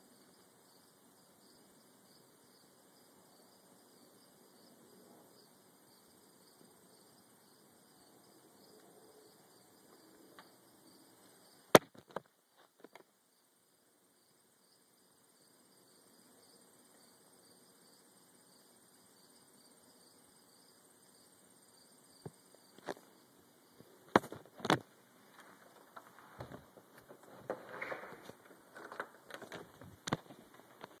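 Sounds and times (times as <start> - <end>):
rustling and bumps: 23.8 - 31.0.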